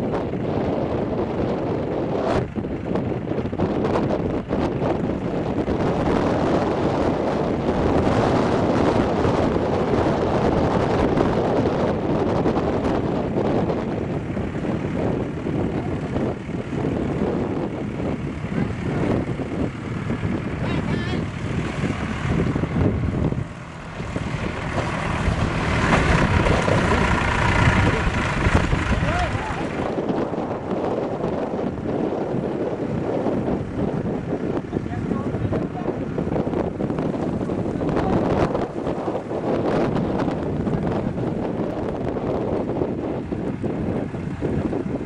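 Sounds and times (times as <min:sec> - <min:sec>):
diesel engine running: 0:00.0 - 0:45.0
wind buffeting microphone: 0:00.0 - 0:45.0.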